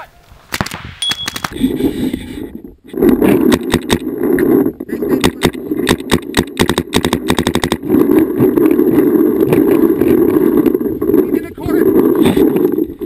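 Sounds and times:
wind noise on microphone: 0:00.2 - 0:13.0
paintball marker firing: 0:05.2 - 0:07.8.

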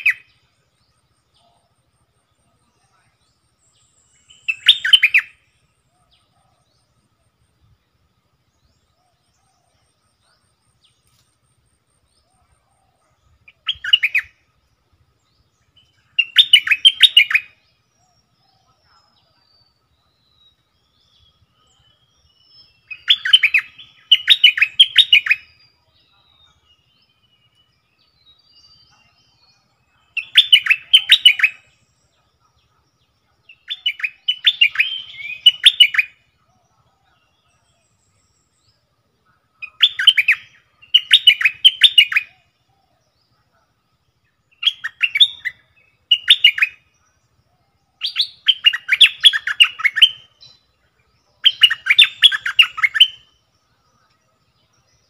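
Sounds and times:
bird singing whistled phrases: 0:02.9 - 0:06.8, 0:13.2 - 0:14.5, 0:15.3 - 0:32.0, 0:33.4 - 0:38.7, 0:39.6 - 0:43.1, 0:44.3 - 0:53.7.

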